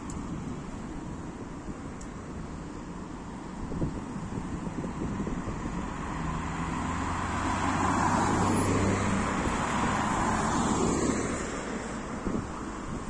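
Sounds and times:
steady traffic noise: 0.0s - 13.0s
car driving past: 6.2s - 11.7s.

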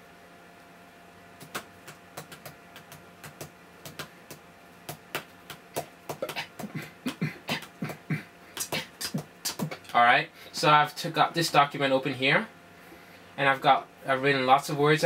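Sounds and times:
trackpad and keyboard clicks: 1.4s - 4.1s.

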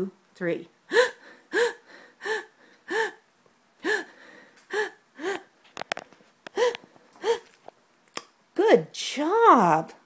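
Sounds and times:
woman wheezing gasps: 0.9s - 3.2s, 3.8s - 5.5s, 6.5s - 7.6s.

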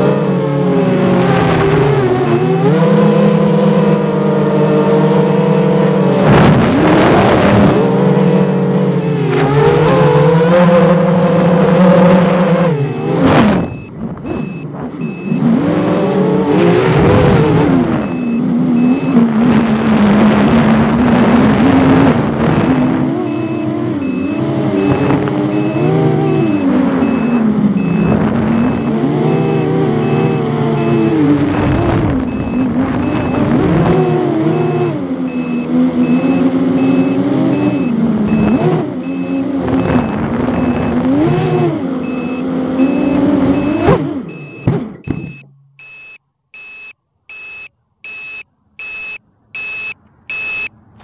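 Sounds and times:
quadcopter motors whining: 0.0s - 6.3s, 7.3s - 39.4s
short high beeps: 0.0s - 6.4s, 7.6s - 11.8s, 12.8s - 16.8s, 17.4s - 31.2s, 32.3s - 50.7s.

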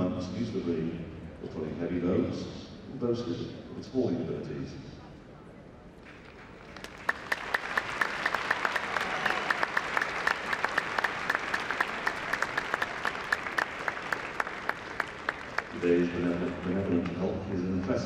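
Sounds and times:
audience applauding: 6.1s - 17.5s.

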